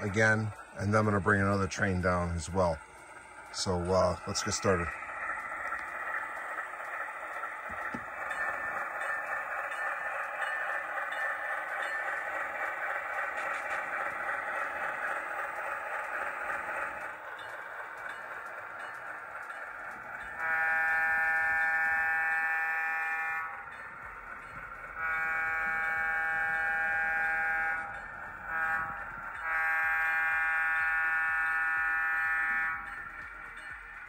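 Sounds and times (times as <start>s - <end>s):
locomotive running sound: 0.0s - 34.0s
diesel air horn blasts: 20.4s - 23.5s, 25.0s - 27.9s, 28.5s - 32.9s.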